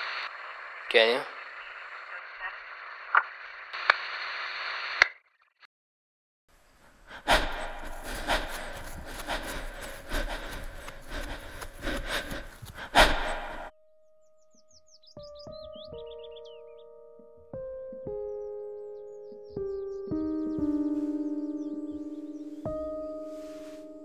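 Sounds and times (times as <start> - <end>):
person breathing: 6.9 - 13.7, 20.7 - 21.4, 23.2 - 24.0
footsteps crunching dry leaves: 7.6 - 13.7.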